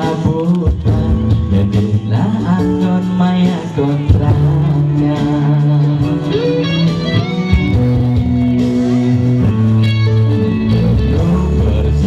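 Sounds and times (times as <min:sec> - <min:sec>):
bass line: 0:00.0 - 0:12.0
electric guitar melody: 0:00.0 - 0:12.0.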